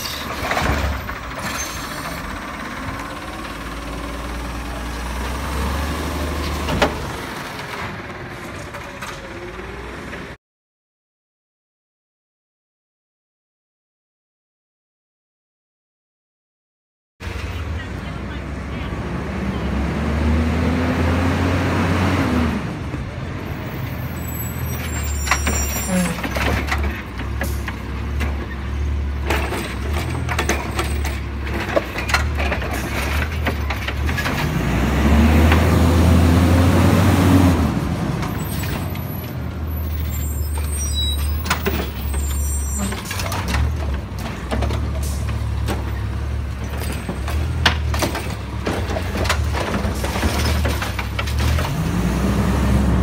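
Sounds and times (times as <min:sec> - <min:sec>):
cart clanking and knocking: 0:00.0 - 0:05.3, 0:24.6 - 0:34.6, 0:38.1 - 0:52.0
garbage truck engine revving: 0:00.0 - 0:10.4, 0:19.0 - 0:23.3, 0:24.0 - 0:53.0
high squeaks: 0:24.0 - 0:26.4, 0:38.3 - 0:43.2.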